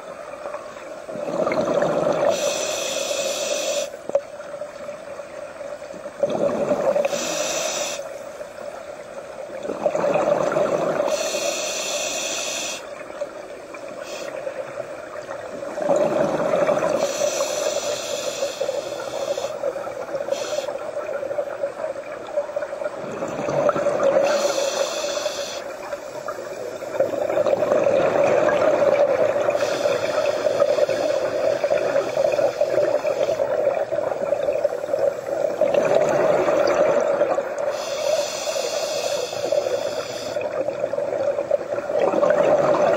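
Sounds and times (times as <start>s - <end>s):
bubbles bursting underwater: 1.1s - 2.3s, 35.6s - 37.6s, 41.6s - 42.9s
regulator hiss: 2.2s - 4.1s, 6.9s - 8.8s, 11.0s - 15.8s, 16.8s - 21.6s, 23.8s - 27.6s, 29.0s - 36.8s, 37.6s - 40.8s.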